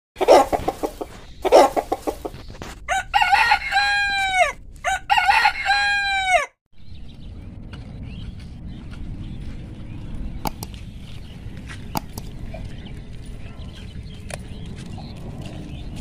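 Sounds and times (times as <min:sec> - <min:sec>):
chickens clucking: 0:00.2 - 0:02.8
rooster crowing: 0:02.9 - 0:06.6.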